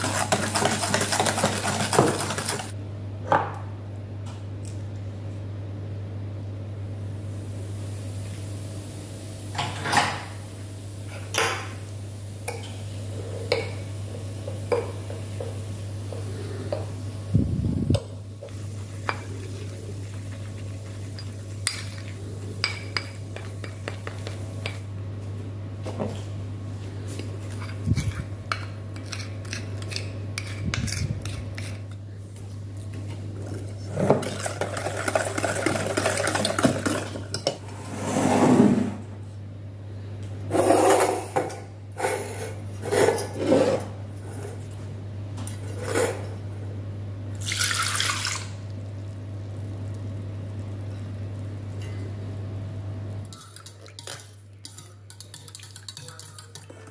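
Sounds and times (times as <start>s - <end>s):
steady low hum: 0.0s - 56.9s
spoon clinking on ceramic bowl: 53.3s - 56.8s.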